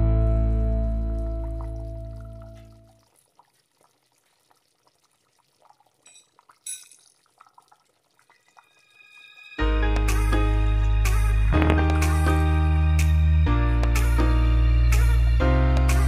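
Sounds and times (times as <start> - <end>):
background music: 0.0 - 2.4, 8.5 - 16.0
sauce bubbling and popping: 1.0 - 9.4.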